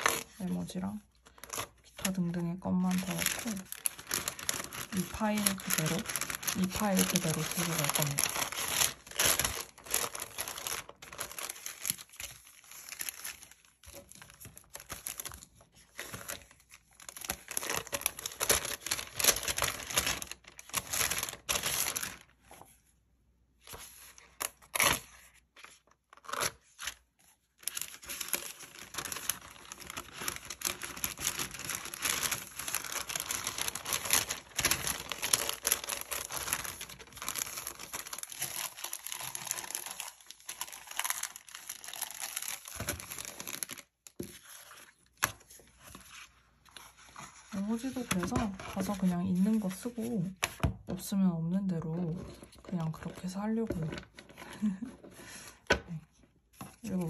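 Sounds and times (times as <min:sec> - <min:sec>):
paper rustling and crinkling: 0:00.0 - 0:22.9, 0:23.6 - 0:50.7, 0:51.9 - 0:57.0.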